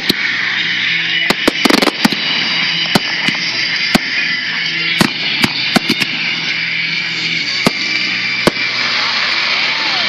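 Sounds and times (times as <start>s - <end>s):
firework shells bursting: 1.2s - 4.3s, 5.0s - 6.3s.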